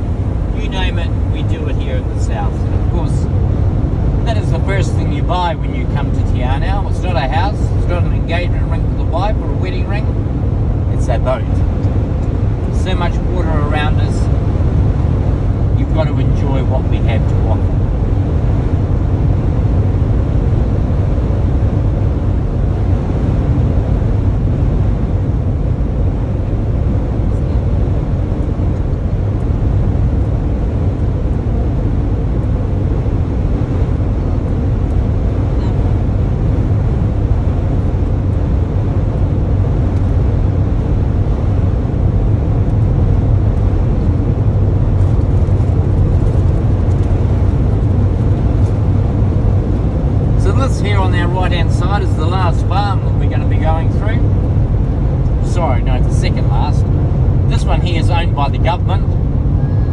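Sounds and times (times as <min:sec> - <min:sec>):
engine and tyre drone: 0:00.0 - 0:59.9.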